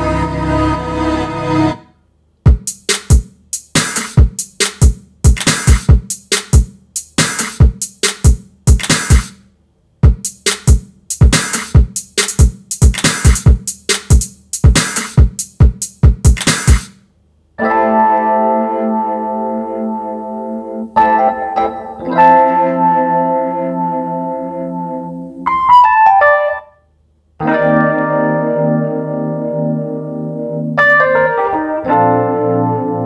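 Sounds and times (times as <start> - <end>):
held synth chord: 0.0 - 1.9, 27.4 - 33.0
drum machine beat: 2.5 - 9.4, 10.0 - 17.0.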